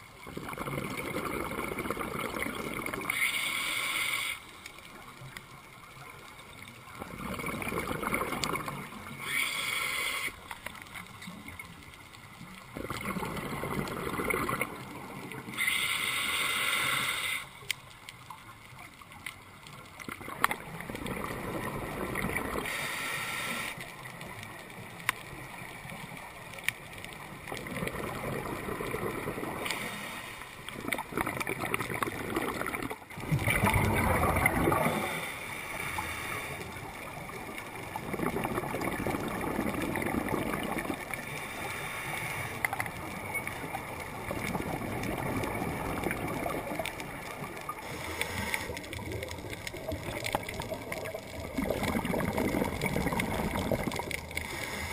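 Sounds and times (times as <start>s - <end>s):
bubbling gurgle of exhaled air: 0.0s - 17.4s, 19.2s - 54.9s
regulator hiss on inhalation: 3.1s - 4.5s, 9.2s - 10.4s, 15.5s - 17.7s, 22.6s - 23.9s, 29.6s - 30.6s, 41.3s - 42.8s, 47.7s - 48.8s, 54.4s - 54.9s.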